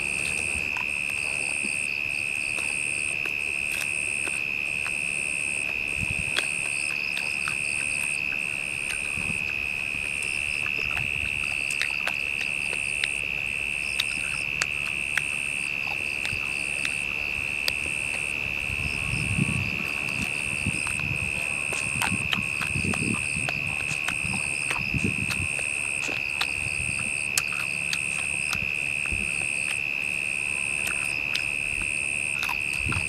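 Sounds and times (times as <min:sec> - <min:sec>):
higher pulsing insect call: 0:00.0 - 0:33.0
insect high unbroken drone: 0:00.0 - 0:33.0.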